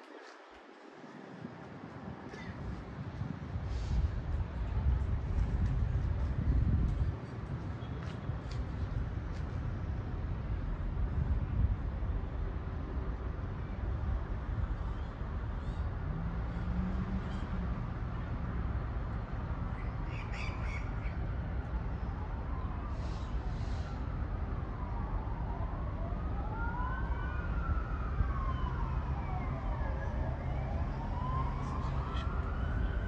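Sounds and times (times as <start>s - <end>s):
emergency vehicle siren wailing: 20.9s - 33.0s.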